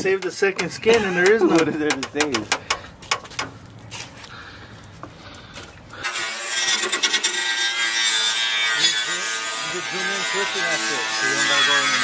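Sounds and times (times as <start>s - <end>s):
angle grinder wire wheel on metal: 6.0s - 12.0s.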